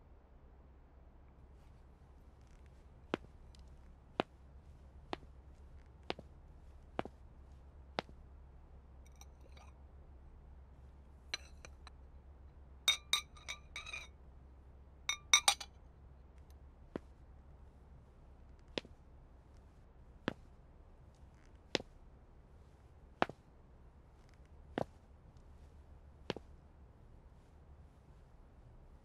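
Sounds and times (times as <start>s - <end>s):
porcelain jar lid clinking: 11.4s - 11.9s, 12.9s - 14.1s, 15.1s - 15.7s.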